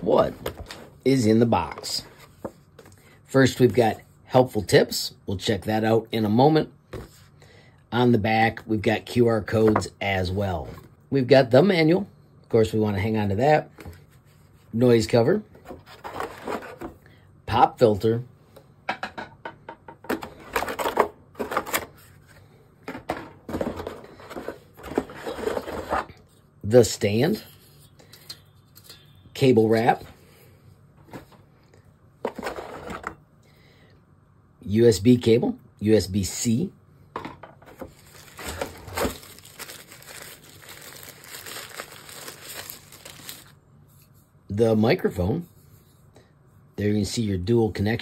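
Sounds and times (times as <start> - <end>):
cardboard packaging rustling: 15.7 - 17.0, 20.1 - 26.1, 37.7 - 43.6.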